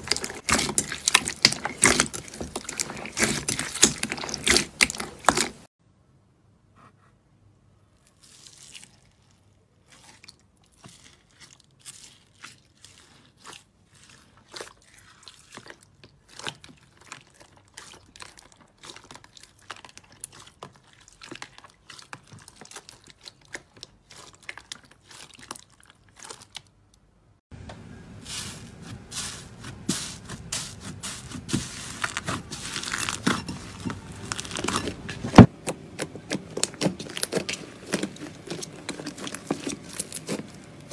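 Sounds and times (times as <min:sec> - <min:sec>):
slime crackling and popping: 0:00.0 - 0:05.7, 0:30.8 - 0:40.9
slime squelching: 0:00.0 - 0:05.7, 0:07.9 - 0:27.1, 0:27.9 - 0:40.9.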